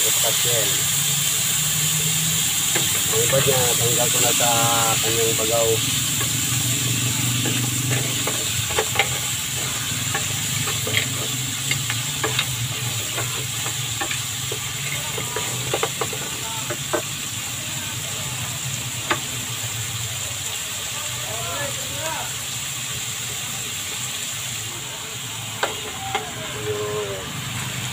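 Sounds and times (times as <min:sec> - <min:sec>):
food sizzling in a pan: 0:00.0 - 0:27.9
wooden spatula scraping a pan: 0:07.4 - 0:17.1.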